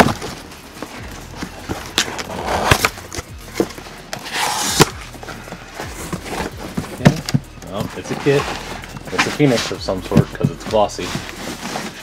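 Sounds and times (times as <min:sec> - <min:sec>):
cardboard rasping: 0:00.0 - 0:12.0
cardboard box knocks and clicks: 0:05.9 - 0:08.4.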